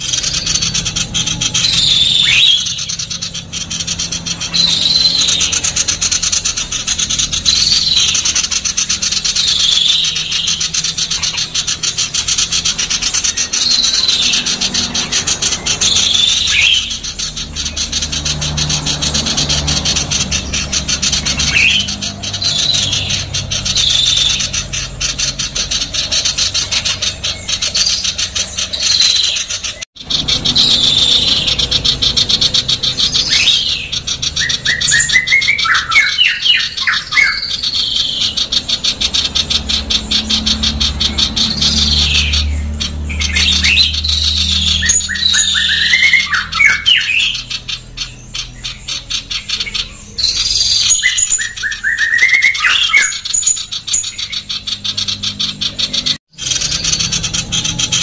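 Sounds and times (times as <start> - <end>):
bird harsh rasping chatter: 0.0 - 58.0
quick whistled bird notes: 0.0 - 58.0.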